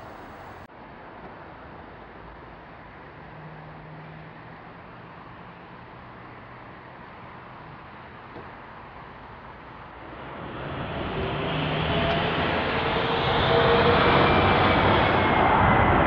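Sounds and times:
jet engines rushing: 0:00.0 - 0:00.7, 0:10.0 - 0:16.0.

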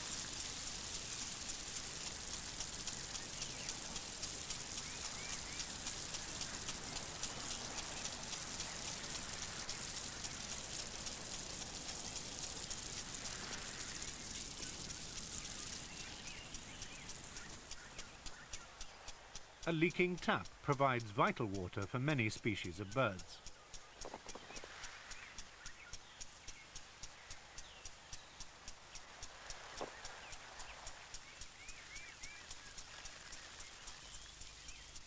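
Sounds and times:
sprinkler water on leaves: 0:00.0 - 0:35.0.

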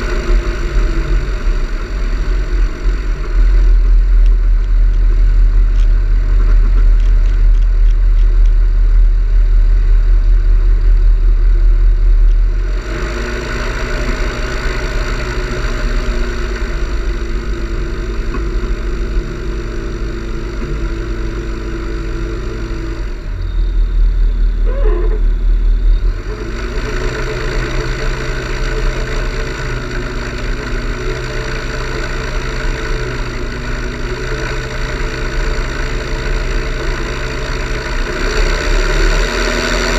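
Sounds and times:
engine drone with low rumble: 0:00.0 - 0:39.9
rising whistle: 0:23.2 - 0:26.5.

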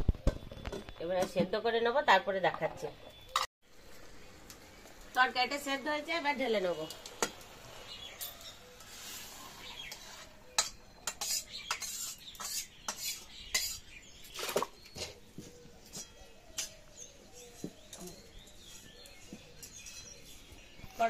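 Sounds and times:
metal spatula scraping a pan: 0:08.2 - 0:13.9.

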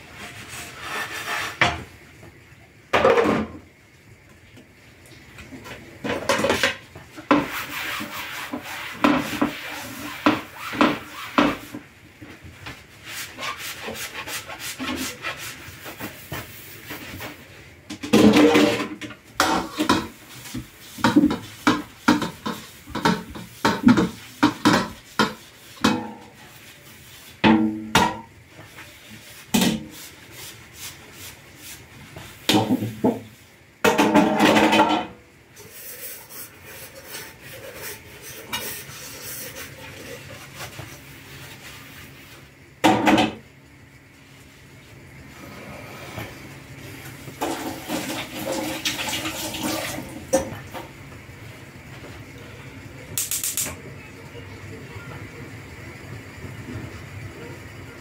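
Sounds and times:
sponge scrubbing metal cookware: 0:00.0 - 0:01.8, 0:06.3 - 0:11.9, 0:12.9 - 0:17.5, 0:18.2 - 0:33.2, 0:35.6 - 0:42.4, 0:47.4 - 0:50.1
pots clattering against steel sink: 0:00.0 - 0:03.7, 0:05.4 - 0:12.4, 0:13.3 - 0:30.1, 0:32.1 - 0:41.0, 0:42.8 - 0:43.5, 0:47.0 - 0:51.0.

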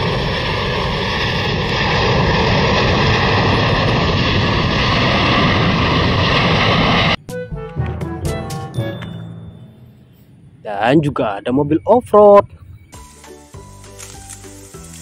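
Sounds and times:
jet engines rushing: 0:00.0 - 0:07.4.

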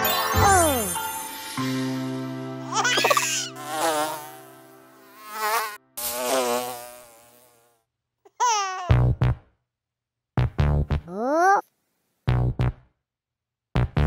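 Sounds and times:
sliding cartoon sound: 0:02.8 - 0:03.5
cartoon insect buzzing: 0:02.8 - 0:07.8.

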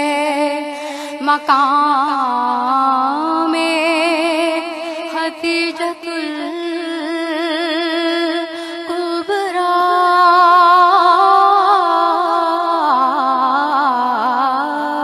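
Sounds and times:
woman singing with vibrato: 0:00.0 - 0:15.0.

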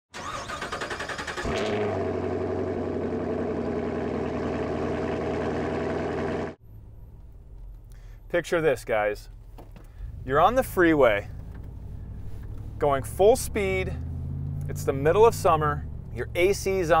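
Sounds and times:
engine starting and idling: 0:00.1 - 0:04.4.

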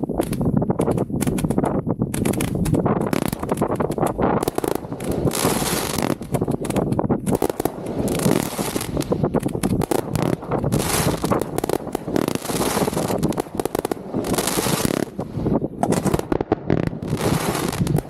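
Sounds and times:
crackling hiss of bursting shells: 0:00.2 - 0:18.0.

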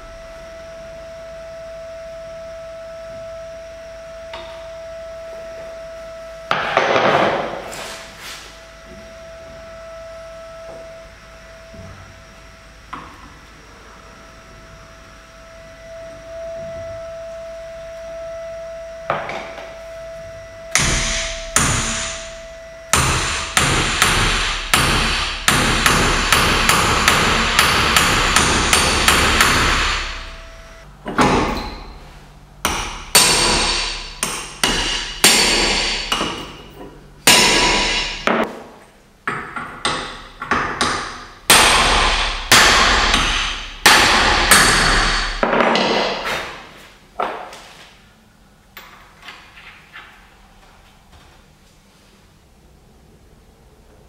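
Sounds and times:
hammer striking steel bar: 0:20.8 - 0:30.4, 0:32.6 - 0:38.6, 0:39.3 - 0:46.6.

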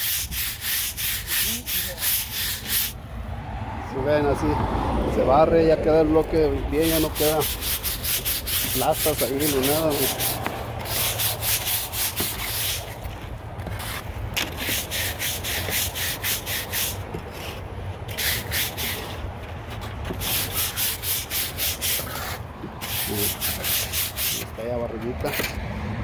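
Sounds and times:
stiff brush scrubbing concrete: 0:00.0 - 0:03.0, 0:06.7 - 0:19.3, 0:19.9 - 0:24.6.

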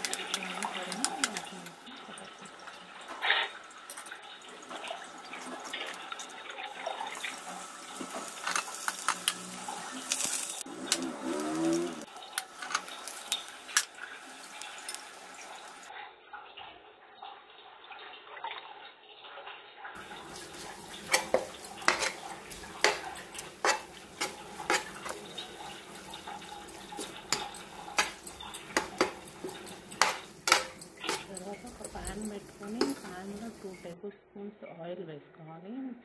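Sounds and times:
oil sizzling in frying pan: 0:00.0 - 0:15.9, 0:20.0 - 0:34.0
wooden spatula scraping pan: 0:07.9 - 0:13.5, 0:20.0 - 0:34.0.

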